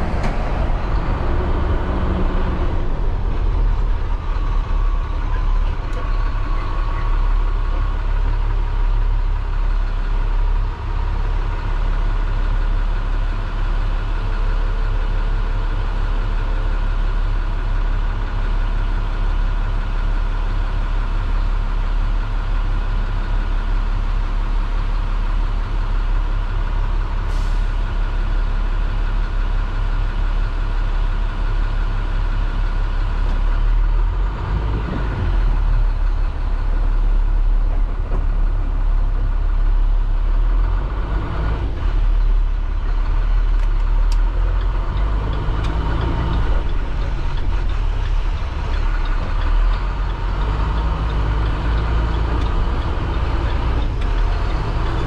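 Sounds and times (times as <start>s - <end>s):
diesel bus engine idling and revving: 0.0s - 55.0s.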